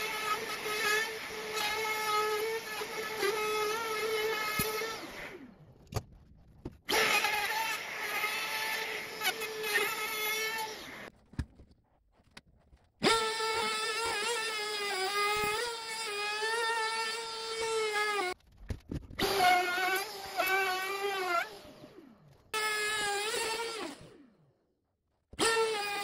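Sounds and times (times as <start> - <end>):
router cutting wood: 0.0 - 5.5, 6.9 - 11.1, 13.0 - 18.4, 19.2 - 22.0, 22.6 - 24.2, 25.4 - 26.0.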